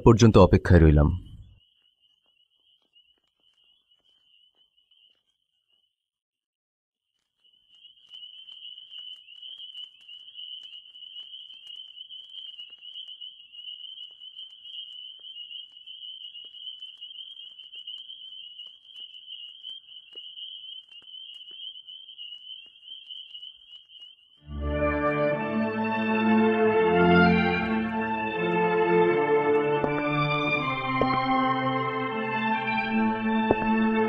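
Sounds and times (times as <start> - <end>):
faint ticks: 7.2 - 24.4
crickets trilling: 7.4 - 24.4.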